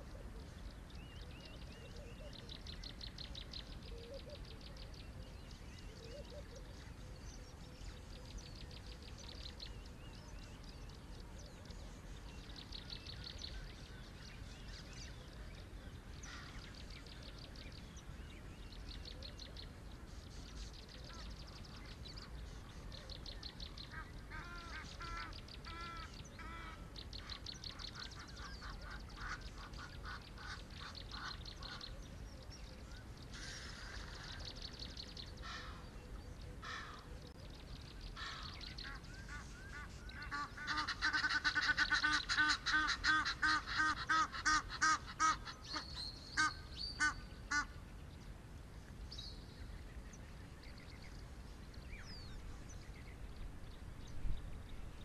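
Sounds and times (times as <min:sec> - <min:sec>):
bird's looping call notes: 0:00.0 - 0:14.5, 0:20.4 - 0:47.8
birds' rattling trills: 0:00.0 - 0:48.3
low steady rumble: 0:00.0 - 0:55.0.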